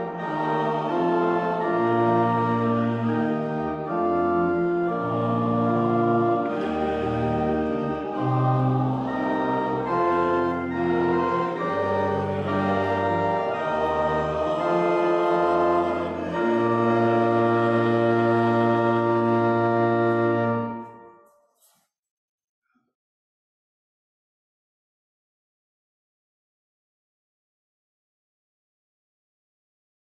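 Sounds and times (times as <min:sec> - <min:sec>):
church organ playing chords: 0:00.0 - 0:21.3.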